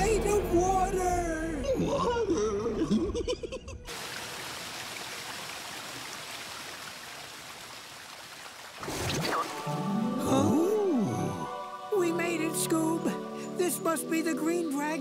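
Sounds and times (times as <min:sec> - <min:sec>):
music: 0:09.2 - 0:15.0.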